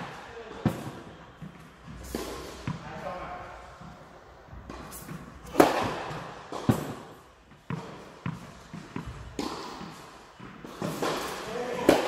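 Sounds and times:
tennis ball strikes and bounces: 4.7s - 12.0s.

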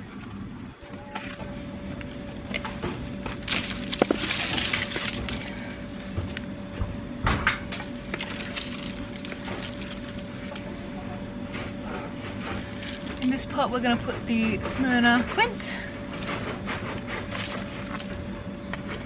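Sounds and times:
soil rustling onto mulch: 3.4s - 5.6s.

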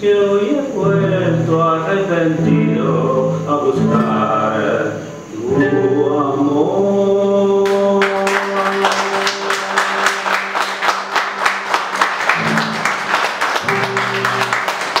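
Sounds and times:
man singing: 0.0s - 10.3s
guitar chord ringing: 2.2s - 6.4s, 12.4s - 15.0s
hand clapping: 7.7s - 15.0s.

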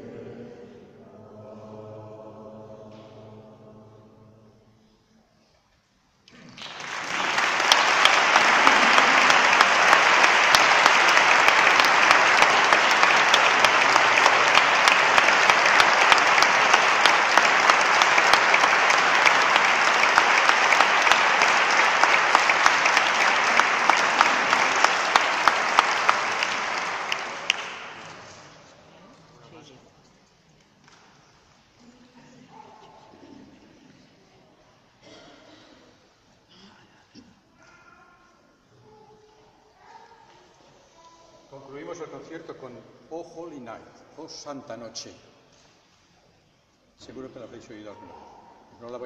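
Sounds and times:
audience applauding: 6.3s - 28.7s.

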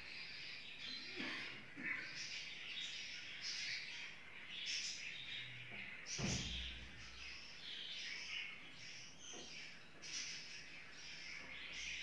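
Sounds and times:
budgerigars chirping: 1.9s - 12.0s.

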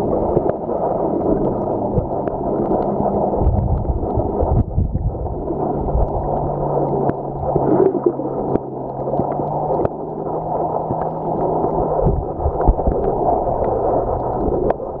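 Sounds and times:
muffled underwater water noise: 0.0s - 15.0s.

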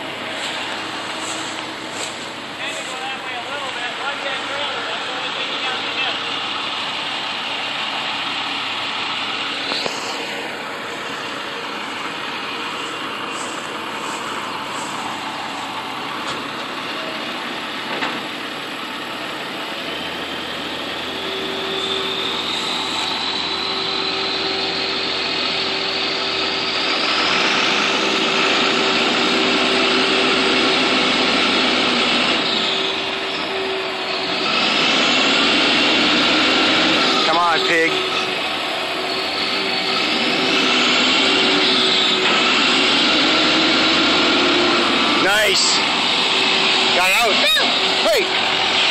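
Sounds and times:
truck diesel engine under load: 0.0s - 48.9s
wheels spinning in grass: 0.2s - 3.2s, 12.7s - 15.8s
turbo whistle: 21.1s - 24.9s.

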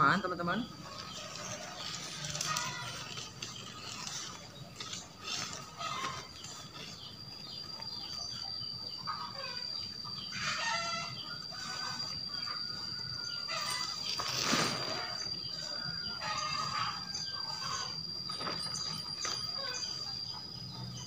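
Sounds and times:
chickens clucking: 0.6s - 21.0s
rooster crowing: 9.1s - 14.0s, 14.9s - 18.1s
noisy rustle: 13.5s - 16.4s.

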